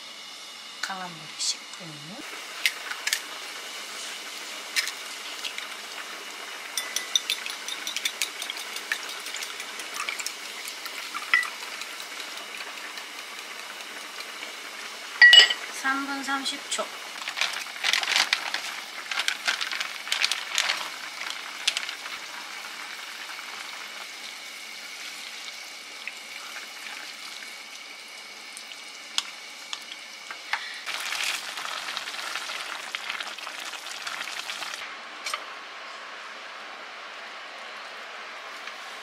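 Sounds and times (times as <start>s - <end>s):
food sizzling in a frying pan: 0.0s - 39.0s.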